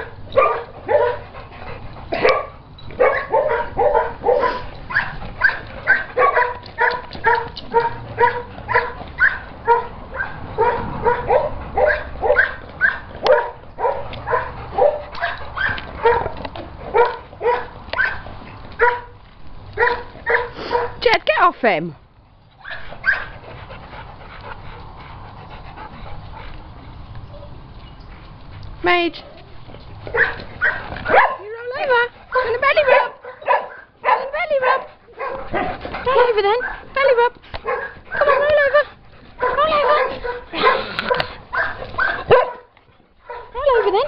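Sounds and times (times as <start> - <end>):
dog yipping: 2.2 - 16.3, 16.9 - 18.2, 18.8 - 19.1, 19.8 - 21.0, 22.6 - 23.3, 30.1 - 36.9, 37.6 - 38.8, 39.4 - 44.0.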